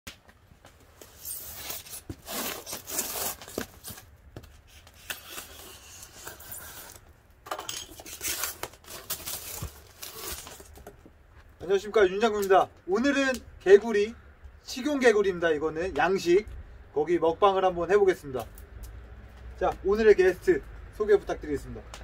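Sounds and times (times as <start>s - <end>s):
knife slitting packing tape: 1.0s - 4.0s, 4.7s - 7.0s, 7.8s - 10.8s
scratchy tearing and scraping: 1.0s - 7.1s, 7.9s - 10.9s.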